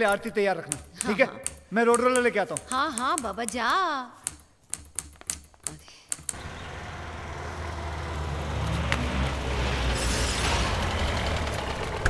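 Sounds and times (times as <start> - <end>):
vehicle engine running: 6.3 - 12.0.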